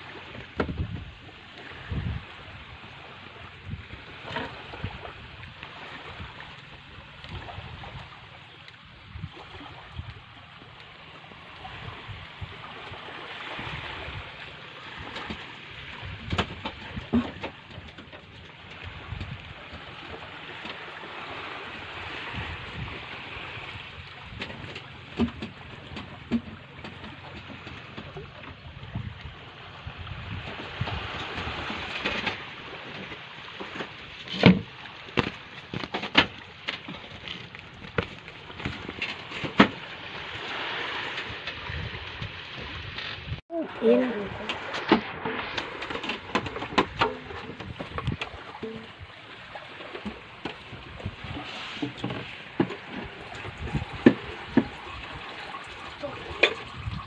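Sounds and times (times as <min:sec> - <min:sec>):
small waves washing on shore: 0:00.0 - 0:57.0
wind and water hiss: 0:00.0 - 0:57.0
tools knocking on boat engine: 0:24.4 - 0:28.2.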